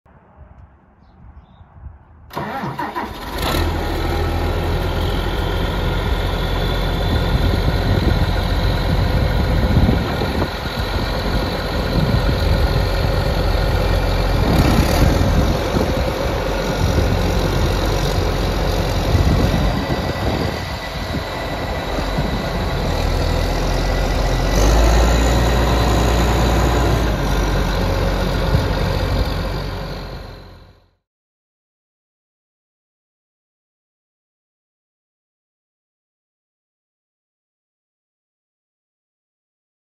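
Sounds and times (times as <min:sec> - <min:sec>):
tractor diesel engine idling: 0:02.3 - 0:30.8.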